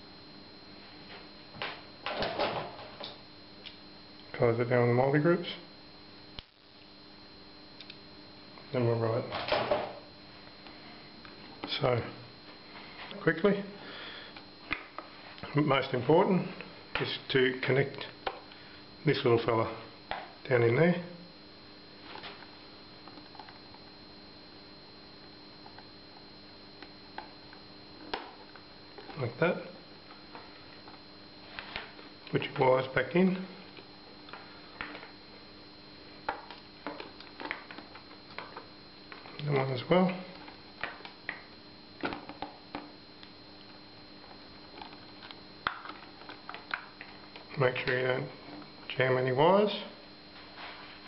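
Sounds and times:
faint high whine: 0.0s - 51.0s.

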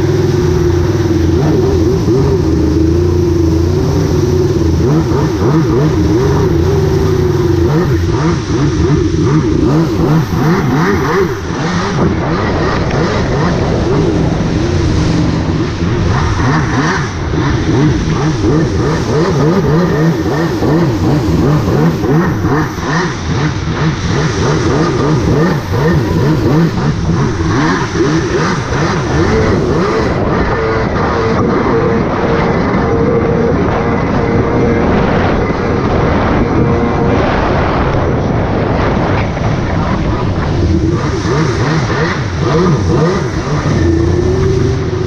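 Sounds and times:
jet ski engine running: 0.0s - 45.0s.

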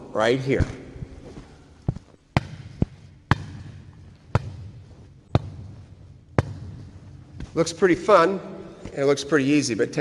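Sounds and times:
volleyball slapping off forearms: 1.9s - 7.6s.

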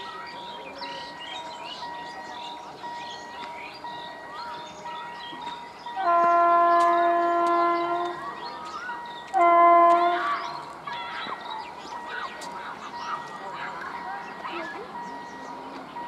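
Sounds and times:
faint steady high tone: 0.0s - 9.4s
birds chirping: 0.0s - 16.0s
locomotive horn blast: 6.0s - 8.2s, 9.3s - 10.6s.

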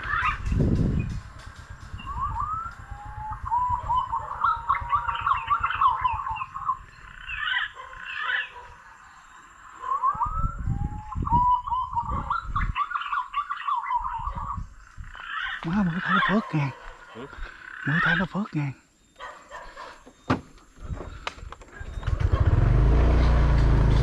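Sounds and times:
pigeon fluting whistles: 2.0s - 6.4s, 9.8s - 12.8s.

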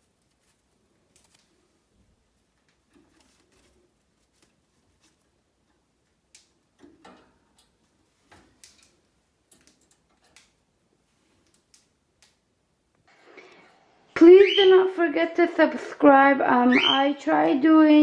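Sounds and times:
bird feet and beak tapping cage: 4.3s - 10.6s.

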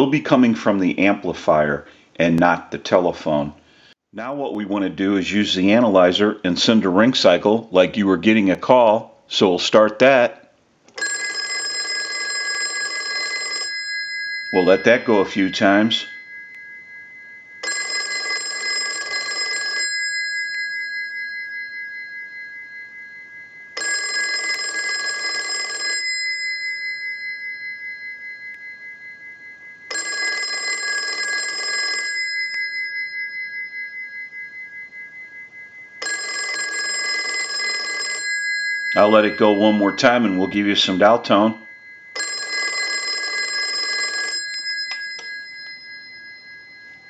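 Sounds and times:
telephone bell ringing: 11.0s - 47.0s.

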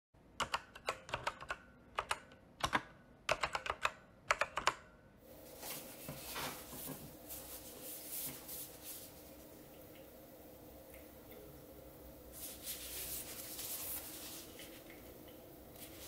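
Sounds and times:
computer keyboard typing: 0.4s - 5.0s
hands rustling paper planner: 5.4s - 9.3s, 12.4s - 15.1s, 15.8s - 16.0s.

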